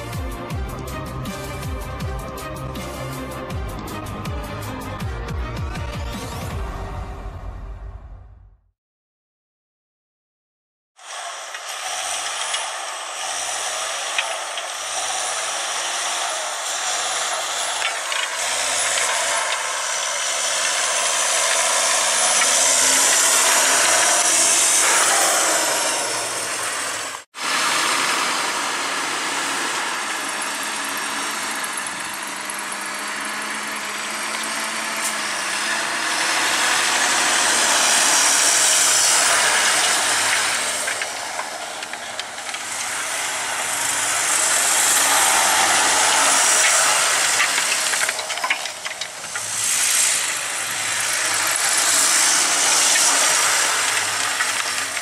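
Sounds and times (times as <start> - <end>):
tractor diesel engine under load: 0.0 - 7.8, 11.0 - 55.0
harrow discs rattling: 30.4 - 55.0.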